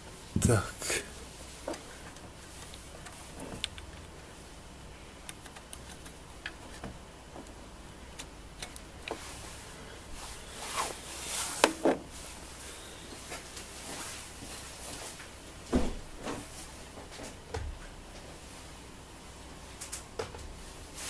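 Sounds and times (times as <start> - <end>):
small plastic clicks: 5.2 - 7.6.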